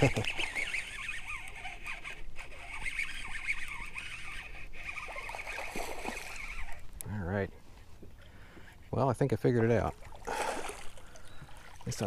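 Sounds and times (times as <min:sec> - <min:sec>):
fishing reel whirring: 0:00.0 - 0:06.9.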